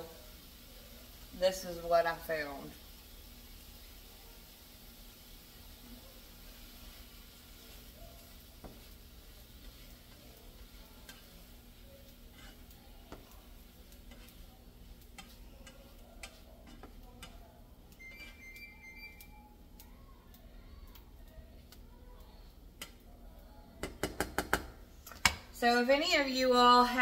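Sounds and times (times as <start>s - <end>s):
sausage sizzling in a skillet: 0.0s - 27.0s
spatula scraping a pan: 6.1s - 18.7s.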